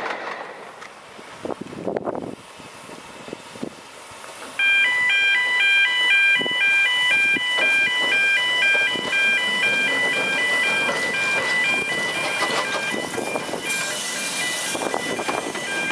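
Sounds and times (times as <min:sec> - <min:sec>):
electronic chiming tune: 0:04.6 - 0:15.9.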